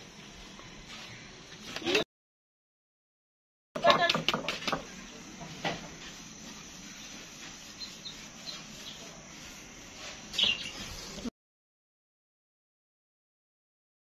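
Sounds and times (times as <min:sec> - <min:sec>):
birds chirping faintly: 0:04.0 - 0:11.3.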